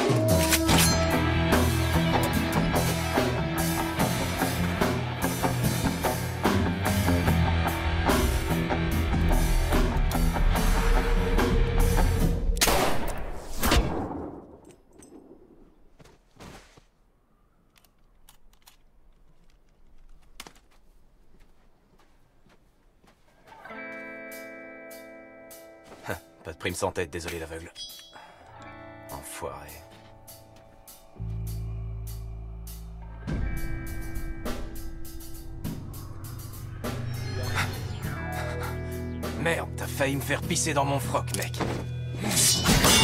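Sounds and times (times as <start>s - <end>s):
loud rock music with drums: 1.0s - 12.5s
faint clicks: 17.6s - 20.6s.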